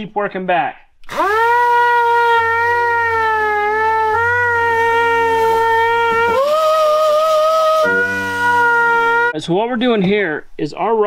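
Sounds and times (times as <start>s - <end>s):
power sander on steel: 1.1s - 9.4s.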